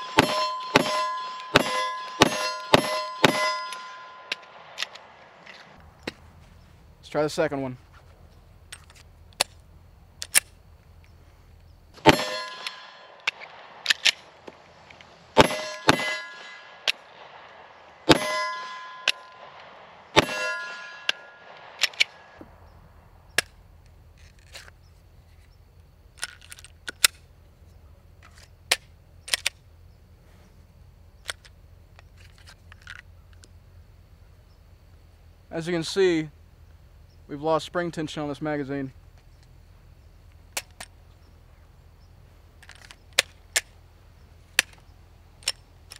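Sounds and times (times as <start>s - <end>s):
metallic ring: 0.0s - 4.9s, 12.0s - 13.4s, 15.4s - 17.0s, 18.1s - 19.6s, 20.2s - 22.4s
pistol shots: 0.0s - 5.8s, 12.0s - 14.7s, 15.3s - 22.4s
pistol slide and magazine clicks: 10.2s - 10.6s, 13.2s - 15.1s, 21.8s - 22.2s, 26.2s - 27.2s, 28.2s - 29.6s.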